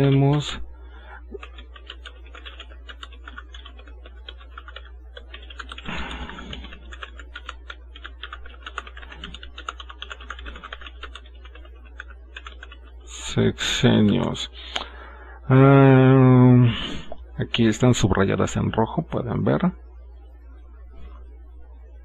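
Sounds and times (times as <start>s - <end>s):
keyboard typing: 0.0s - 0.6s, 1.2s - 13.1s
steady low hum: 0.0s - 22.0s.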